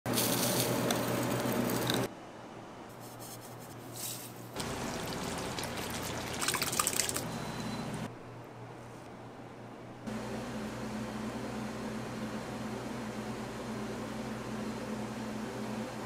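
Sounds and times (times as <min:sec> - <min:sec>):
liquid dripping and pouring: 0:04.6 - 0:07.3.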